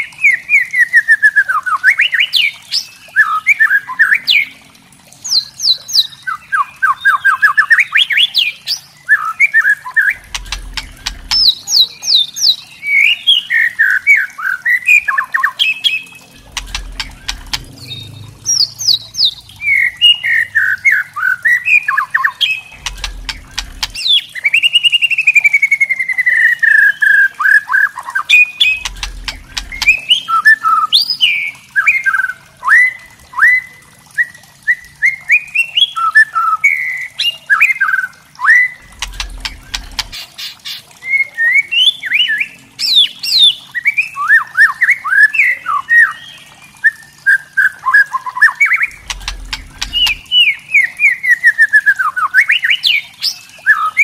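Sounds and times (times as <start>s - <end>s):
bird clicking and rattling notes: 10.2s - 11.6s, 16.2s - 20.0s, 22.7s - 24.1s, 28.6s - 30.2s, 38.8s - 40.8s, 48.9s - 50.4s.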